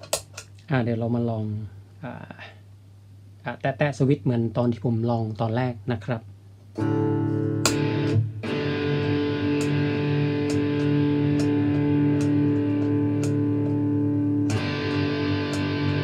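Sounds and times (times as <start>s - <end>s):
distorted electric guitar chords: 6.8s - 16.0s.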